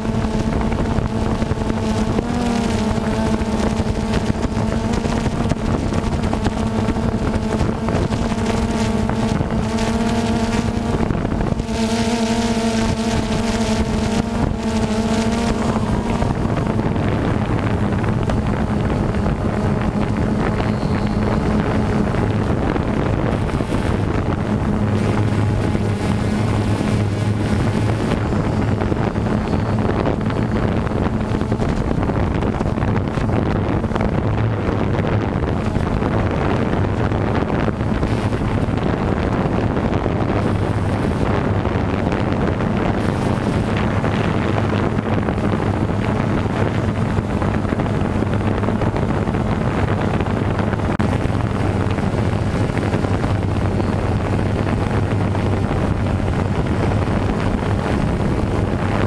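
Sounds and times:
quadcopter motors humming: 0.0s - 59.0s
wind on microphone: 0.0s - 59.0s.

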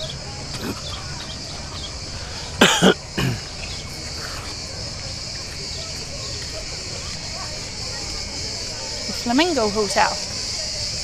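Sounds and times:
crickets chirring: 0.0s - 11.0s
person coughing: 2.6s - 3.5s.

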